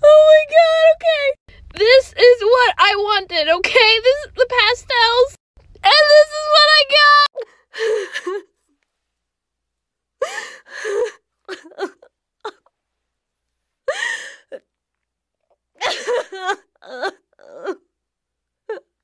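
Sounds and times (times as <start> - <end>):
woman whimpering and gasping: 7.4 - 8.6, 10.2 - 12.7, 13.9 - 14.6.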